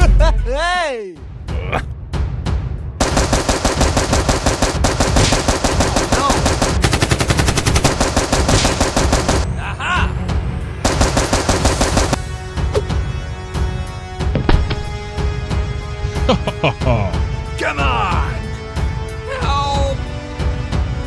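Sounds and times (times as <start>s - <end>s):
automatic gunfire: 3.0s - 9.4s, 10.8s - 12.2s.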